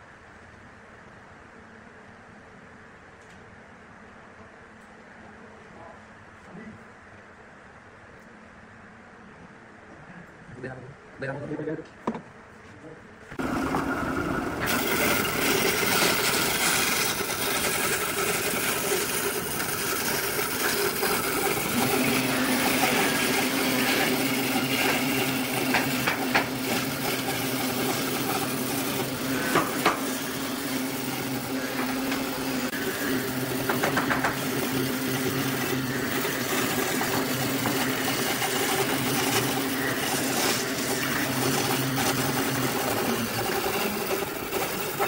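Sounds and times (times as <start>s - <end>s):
bandsaw motor hum: 13.3s - 45.0s
saw blade hissing through wood: 14.7s - 45.0s.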